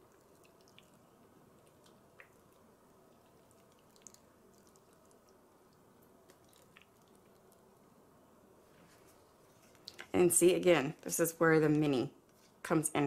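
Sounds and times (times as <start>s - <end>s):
liquid trickling: 0.0s - 7.7s.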